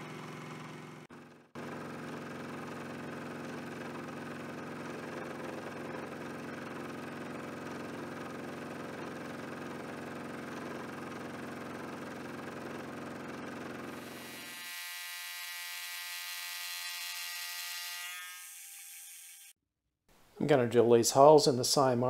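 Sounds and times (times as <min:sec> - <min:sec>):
milling machine cutting metal: 0:14.0 - 0:19.5.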